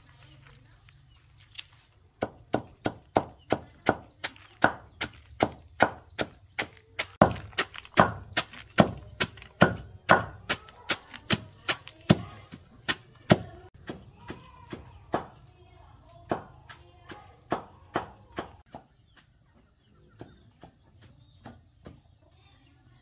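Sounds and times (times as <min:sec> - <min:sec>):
sharp chopping strikes: 0:02.2 - 0:15.3.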